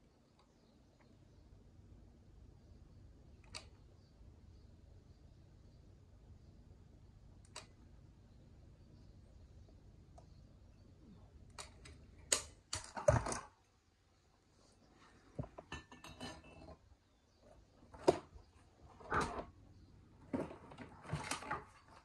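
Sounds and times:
metal clinking against ceramic: 0:15.7 - 0:16.8.

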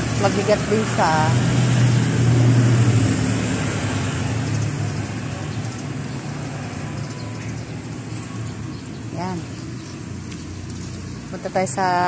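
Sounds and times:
car engine humming: 0:00.0 - 0:12.0
street traffic noise: 0:00.0 - 0:12.0.

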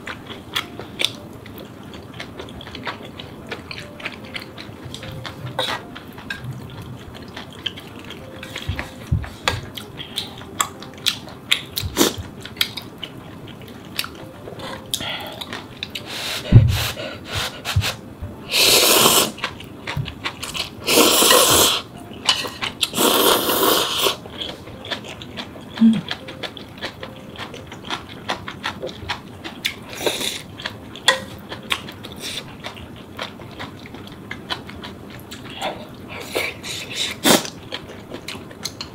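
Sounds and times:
slurping noodles: 0:18.5 - 0:19.4, 0:20.8 - 0:21.8, 0:22.9 - 0:24.2.

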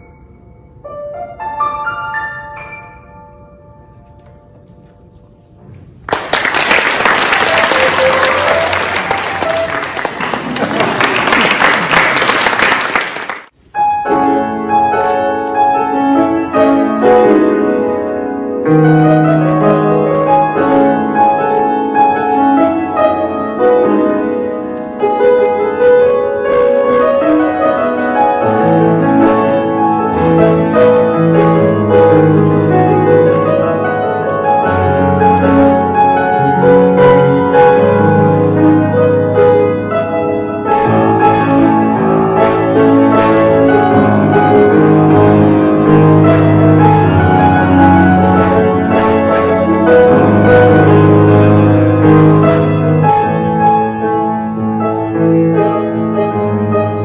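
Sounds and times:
solo grand piano piece: 0:00.0 - 0:57.0
applause: 0:06.0 - 0:13.5.

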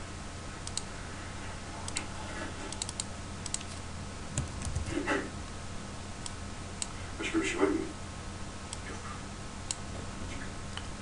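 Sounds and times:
low electrical hum: 0:00.0 - 0:11.0
keyboard and mouse clicks: 0:00.6 - 0:00.9, 0:02.7 - 0:03.8, 0:04.4 - 0:04.9.

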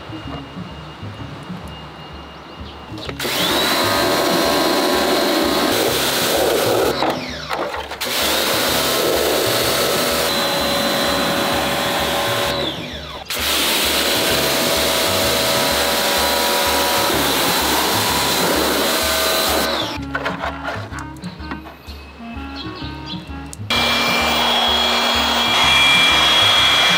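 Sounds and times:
pressure washer spraying plastic: 0:03.1 - 0:21.0.

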